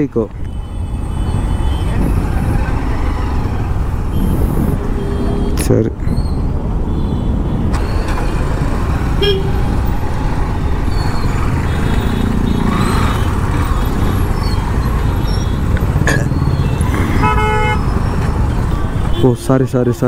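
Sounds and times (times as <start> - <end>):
motorcycle engine and road rumble: 0.0 - 20.0
car horn toots: 9.2 - 9.6, 16.6 - 17.9.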